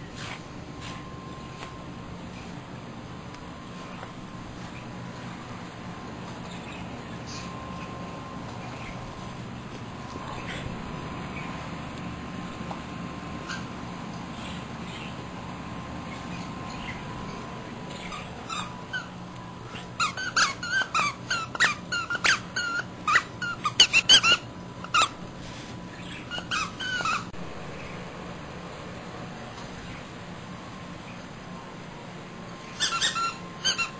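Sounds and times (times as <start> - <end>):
squeaky toy squeaking: 18.0 - 19.1, 19.7 - 25.2, 26.3 - 27.3, 32.7 - 33.9.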